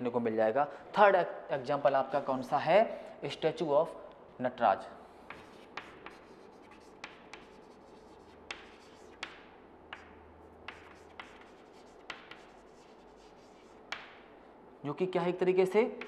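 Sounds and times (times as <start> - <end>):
chalk scratching on board: 5.2 - 14.2
chalk tapping on chalkboard: 5.2 - 14.3.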